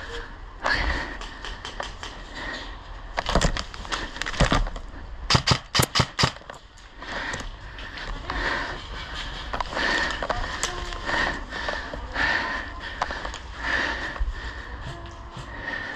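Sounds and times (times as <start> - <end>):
sharp clicks: 5.3 - 6.6.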